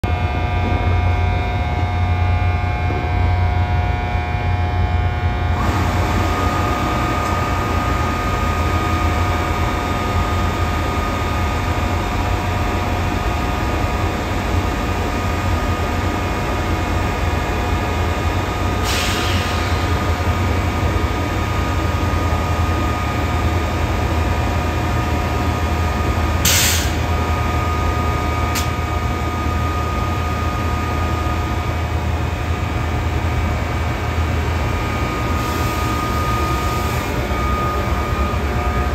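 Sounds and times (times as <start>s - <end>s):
train locomotive idling: 0.0s - 38.9s.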